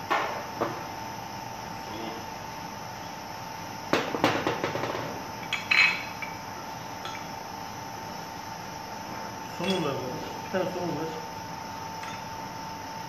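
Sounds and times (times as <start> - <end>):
bolts and nuts clinking on steel: 9.5 - 10.0.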